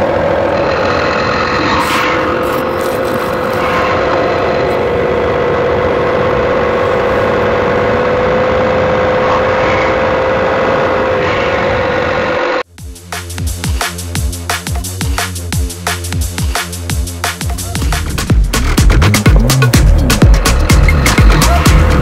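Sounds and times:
electric fan hum: 0.0s - 12.6s.

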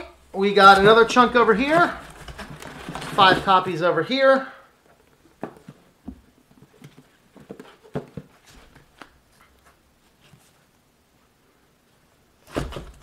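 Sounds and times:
books tapping and knocking: 0.5s - 3.8s, 4.9s - 9.2s, 12.4s - 13.0s.

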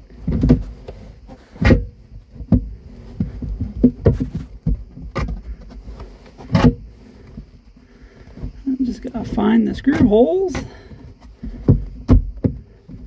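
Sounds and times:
plastic parts knocking and clunking: 0.0s - 8.6s, 9.2s - 13.0s
low rumbling handling noise: 0.0s - 13.0s.

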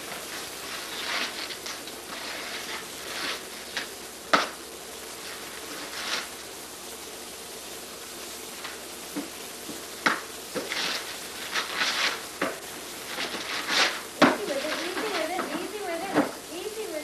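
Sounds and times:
paper rustling and crinkling: 0.0s - 4.0s, 5.2s - 6.4s, 10.5s - 16.4s
steady hiss: 0.0s - 17.0s.

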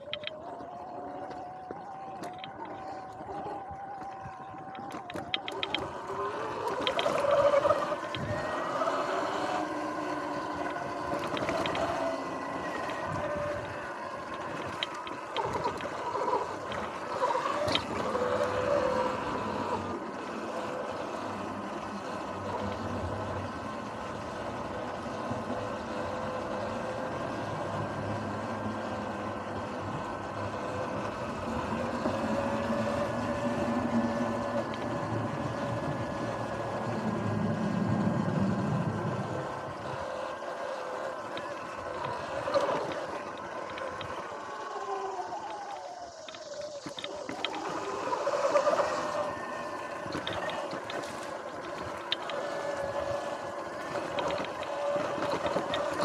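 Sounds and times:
clicks and knocks from rough ground: 0.0s - 23.7s, 39.6s - 56.0s
electric motor whine: 0.0s - 56.0s.

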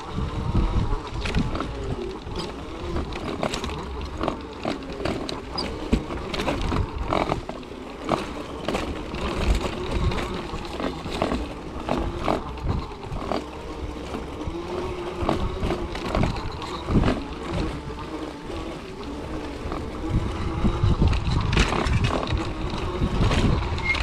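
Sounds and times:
continuous rumble: 0.0s - 24.0s
electric motor whining: 0.0s - 24.0s
frame and wheels rattling: 0.0s - 24.0s.

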